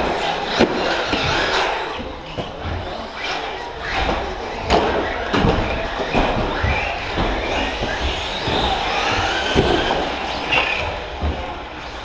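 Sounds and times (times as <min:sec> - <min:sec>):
electric toy truck motors whining: 0:06.5 - 0:11.2.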